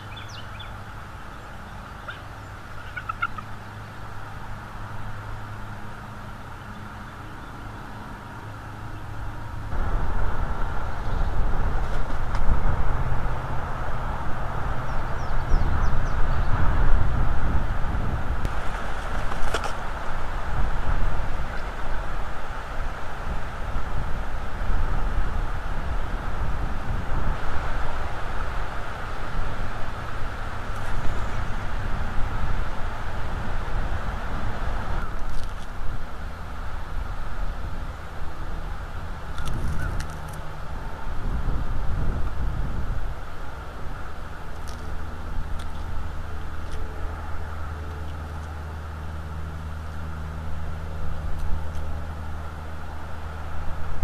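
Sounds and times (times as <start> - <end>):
low outdoor rumble: 0.0 - 54.0
wind buffeting microphone: 9.7 - 46.6.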